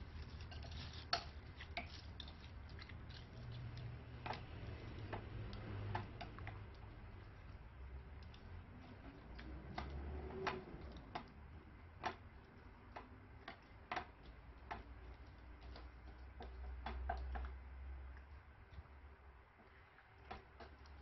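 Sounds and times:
spoon stirring beaded slime: 0.0 - 18.9.

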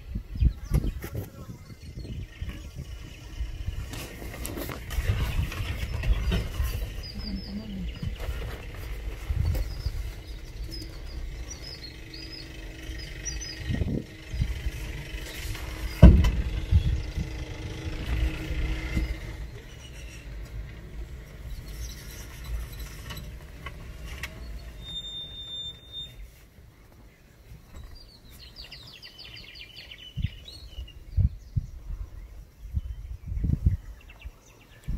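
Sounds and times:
vehicle engine rumbling: 0.0 - 34.9
low thumps: 2.0 - 24.8
bird chirping trill: 5.0 - 26.4
sharp thump: 15.6 - 16.8.

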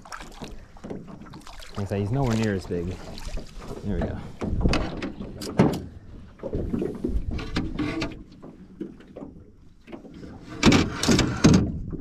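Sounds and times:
scraping in boat: 0.8 - 12.0.

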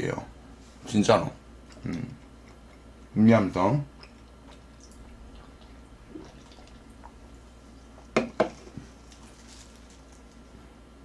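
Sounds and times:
person swallowing drink: 4.0 - 7.3.

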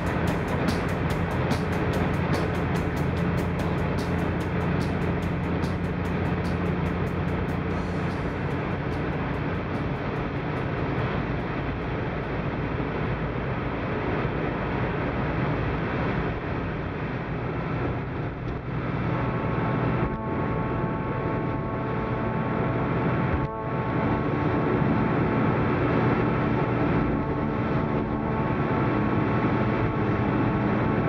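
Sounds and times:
tyres hissing on wet road: 0.0 - 17.9
engine and tyre rumble: 0.0 - 31.0.

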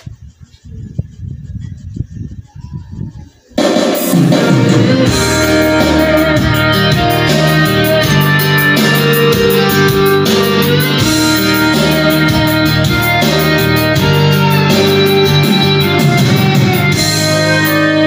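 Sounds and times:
guitar music through speakers: 3.6 - 18.0.

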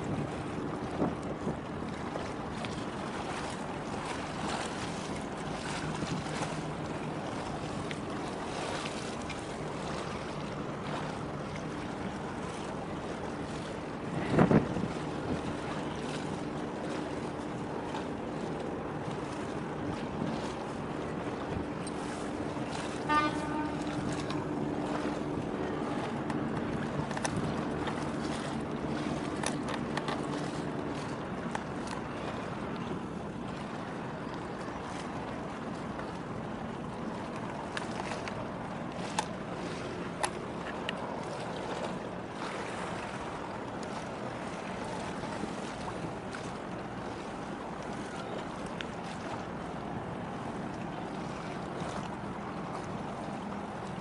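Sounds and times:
wind on microphone: 0.0 - 8.8, 13.1 - 17.0
boat engine drone: 0.0 - 54.0
water washing along hull: 0.0 - 54.0
wind: 0.0 - 54.0.

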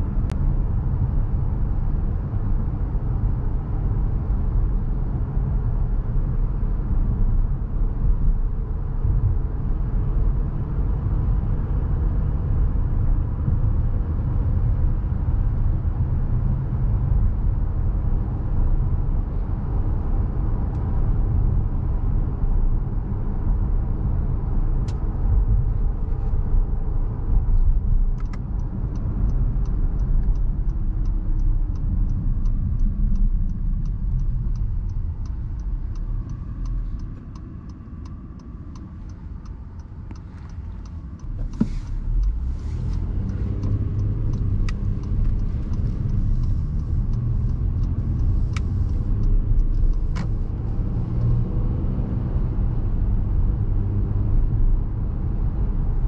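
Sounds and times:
low engine hum: 0.0 - 56.0
turn signal ticking: 23.4 - 55.8.

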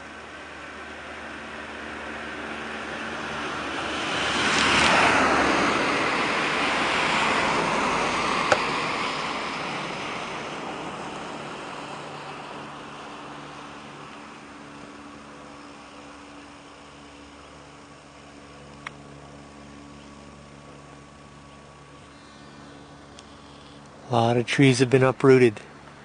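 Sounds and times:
vehicle tyre whoosh: 3.2 - 13.1
sharp click: 8.5 - 8.7, 18.7 - 19.0.

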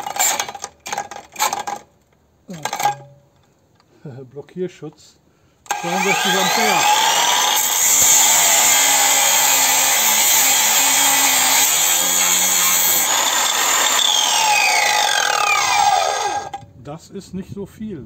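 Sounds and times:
angle grinder cutting steel: 5.7 - 16.6
grinder motor spinning down: 5.7 - 16.6.

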